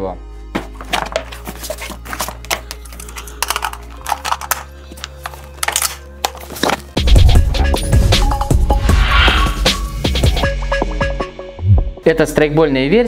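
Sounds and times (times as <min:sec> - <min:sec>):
quiet background music: 0:00.0 - 0:10.2, 0:11.6 - 0:13.0
clicks taps and rustles: 0:00.6 - 0:06.9
loud intro music: 0:07.0 - 0:12.1.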